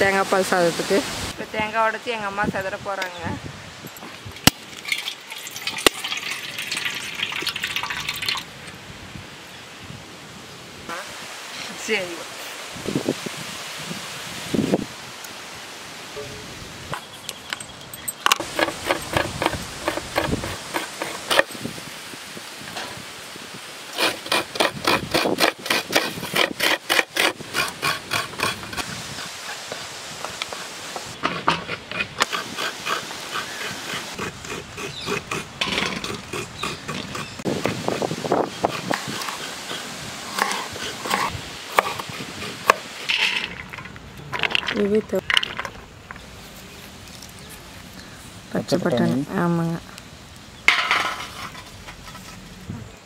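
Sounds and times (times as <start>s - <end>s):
water trickling into steel bowl: 4.7s - 8.5s
coconut grater rasping: 18.4s - 21.5s, 23.9s - 43.4s.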